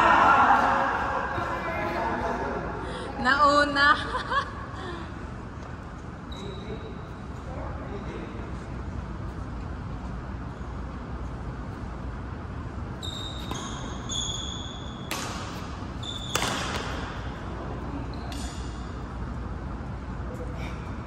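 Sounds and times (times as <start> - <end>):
low room noise: 0.0 - 21.0
shoes squeaking on court: 5.8 - 7.5, 12.9 - 17.4, 18.0 - 19.0
racket striking shuttlecock: 15.0 - 17.3.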